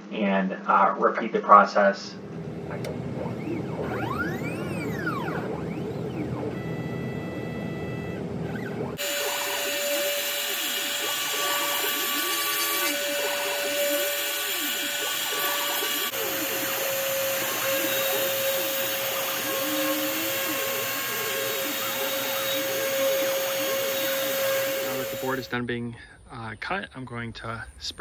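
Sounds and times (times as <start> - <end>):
stepper motors whining: 2.2 - 25.5
router bit cutting wood: 2.8 - 7.8, 8.4 - 25.5.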